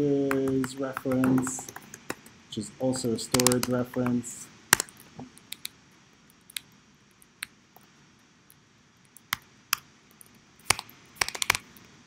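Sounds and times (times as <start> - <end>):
computer keyboard clicks: 3.3 - 4.2, 10.7 - 11.8.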